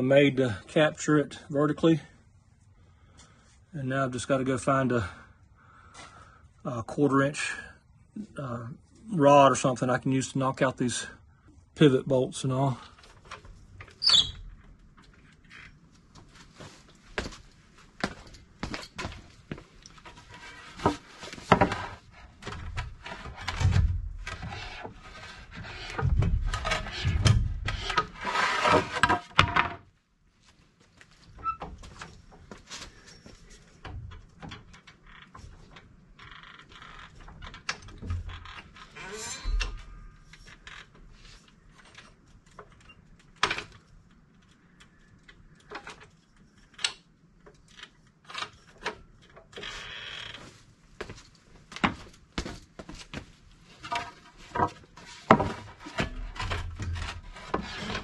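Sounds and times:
tools and metal clattering: 37.8s - 40.6s, 53.7s - 58.0s.

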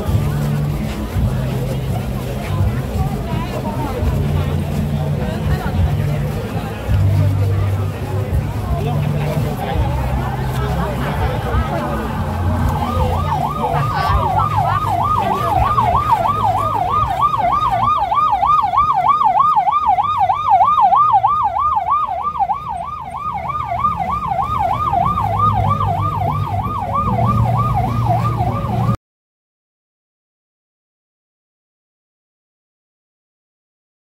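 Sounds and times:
low traffic rumble: 0.0s - 29.0s
emergency siren yelping: 9.0s - 29.0s.

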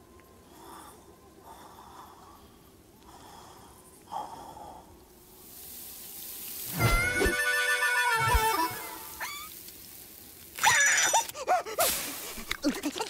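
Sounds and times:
rising hiss: 4.9s - 13.0s.

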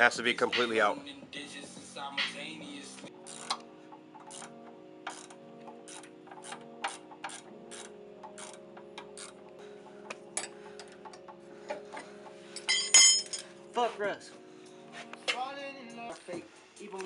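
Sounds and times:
song playing: 0.0s - 17.0s
ratchet wrench clicking: 3.3s - 3.6s, 4.2s - 9.4s.

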